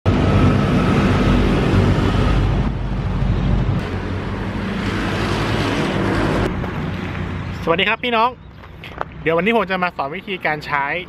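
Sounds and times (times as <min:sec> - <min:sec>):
wind noise on microphone: 0:00.1 - 0:07.4.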